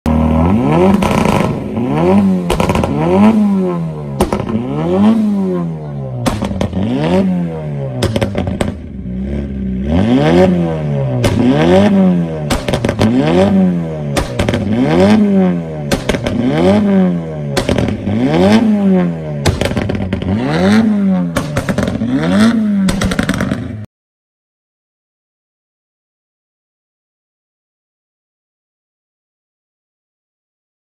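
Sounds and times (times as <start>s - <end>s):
exhaust popping and crackling: 0.1s - 5.6s, 6.2s - 9.4s, 10.0s - 23.9s
car engine revving: 0.1s - 23.9s.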